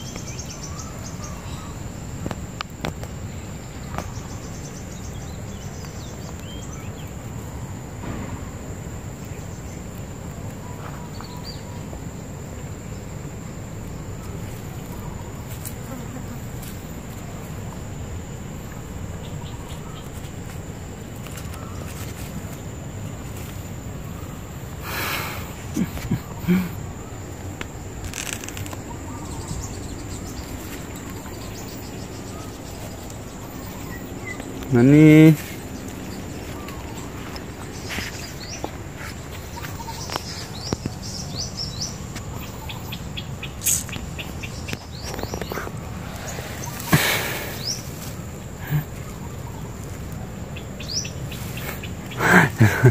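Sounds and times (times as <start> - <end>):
insects trilling: 0.0 - 52.9
small birds chirping: 0.0 - 52.9
faint rustles: 19.5 - 41.2, 43.6 - 52.9.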